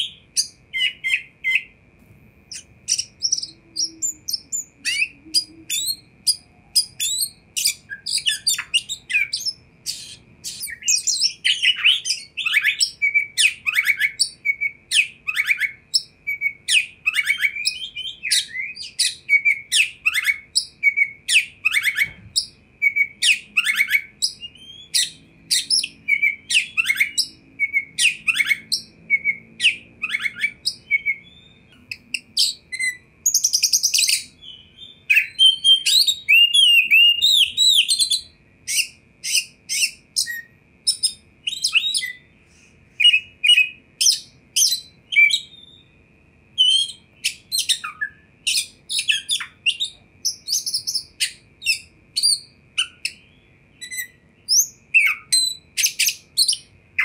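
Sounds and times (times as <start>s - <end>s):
bird singing whistled notes: 0.0s - 1.8s, 2.5s - 42.4s, 43.0s - 57.0s
high bird trills: 0.0s - 1.9s, 2.5s - 46.0s.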